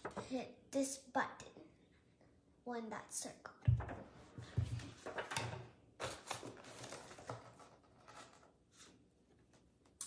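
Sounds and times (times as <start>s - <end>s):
paper and cardboard rustling: 4.4s - 9.0s.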